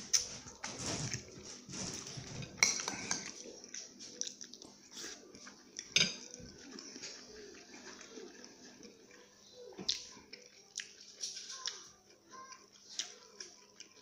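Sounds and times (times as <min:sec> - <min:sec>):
man chewing and smacking: 0:03.2 - 0:05.9, 0:09.8 - 0:14.0.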